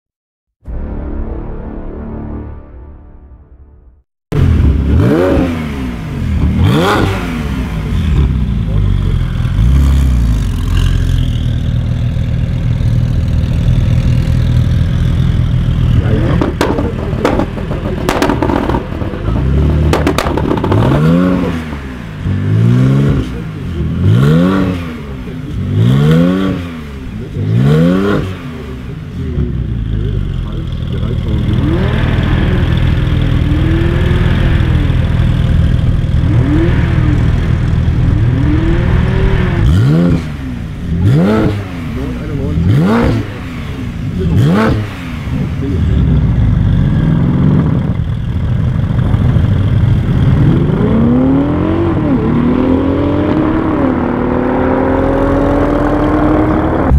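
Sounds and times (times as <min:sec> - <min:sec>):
car engine revving: 0:04.3 - 0:56.9
exhaust pops and bangs: 0:16.0 - 0:21.3.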